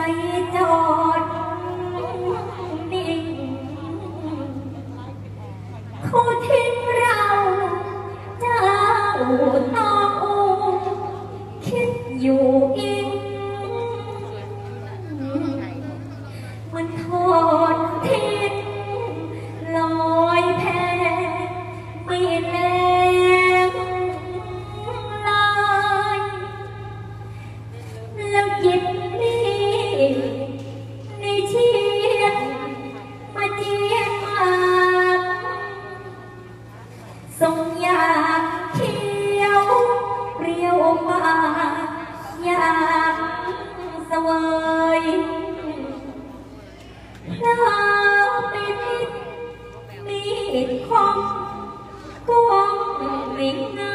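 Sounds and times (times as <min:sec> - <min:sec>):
steady low hum: 0:00.0 - 0:53.9
woman singing through pa: 0:50.1 - 0:53.9.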